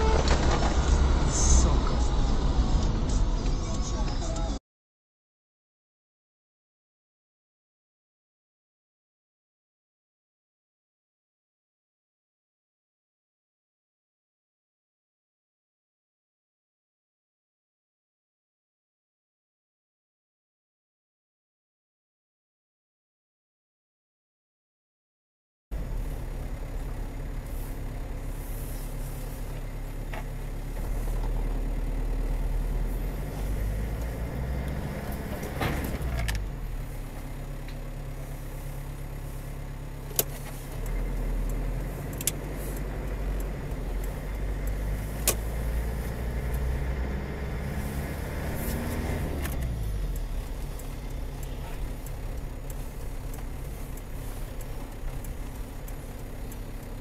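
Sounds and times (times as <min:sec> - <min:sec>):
car engine and road rumble: 0:00.0 - 0:04.6, 0:25.7 - 0:57.0
sharp clicks: 0:40.1 - 0:46.7.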